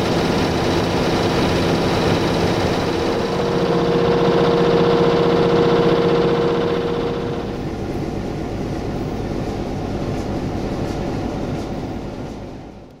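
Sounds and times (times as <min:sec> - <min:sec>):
locomotive diesel engine humming: 0:00.0 - 0:12.9
broad rumble: 0:02.2 - 0:09.1.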